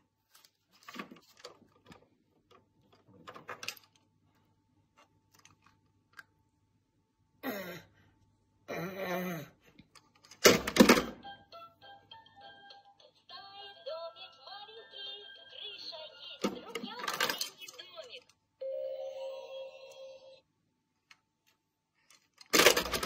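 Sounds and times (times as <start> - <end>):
plastic toys clicking and tapping: 16.4 - 18.3, 22.0 - 23.0
loud plastic clatter: 22.4 - 23.0.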